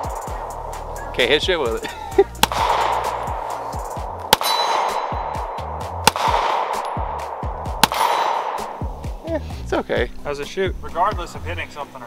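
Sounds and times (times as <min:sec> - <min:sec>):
background music: 0:00.0 - 0:12.0
pistol shots: 0:02.4 - 0:09.0.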